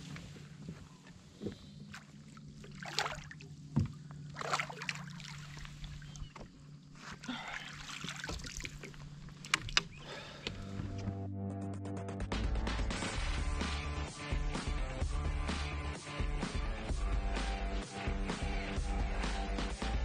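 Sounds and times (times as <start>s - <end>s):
steady low hum: 0.0s - 11.3s
fish splashing at the surface: 2.6s - 3.5s, 4.4s - 6.0s.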